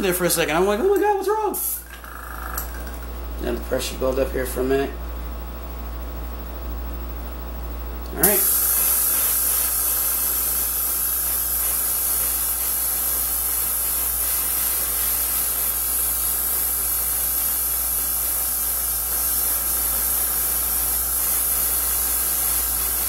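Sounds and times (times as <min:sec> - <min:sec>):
airbrush spraying hiss: 0:01.5 - 0:01.8, 0:08.2 - 0:23.0.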